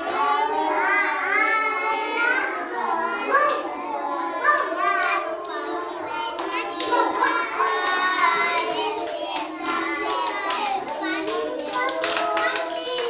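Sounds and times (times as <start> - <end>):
small children singing: 0.0 - 13.0
hand claps: 4.6 - 13.0.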